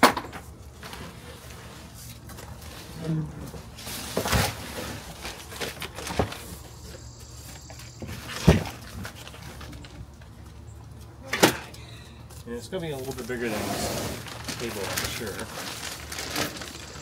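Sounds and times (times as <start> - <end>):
cardboard and paper rustling: 0.7 - 10.4, 12.4 - 17.0.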